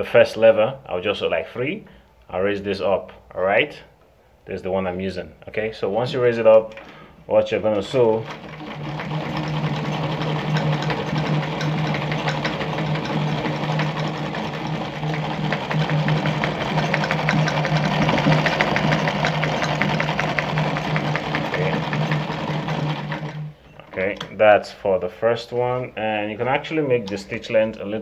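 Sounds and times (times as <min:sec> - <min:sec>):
sewing machine running: 0:07.8 - 0:24.4.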